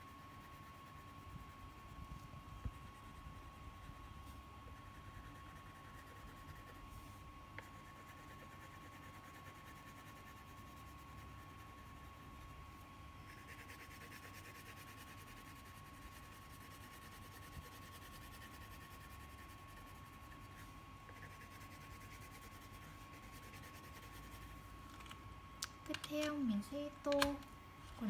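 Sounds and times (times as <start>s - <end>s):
crayon scratching on paper: 4.8s - 12.5s, 13.3s - 24.6s.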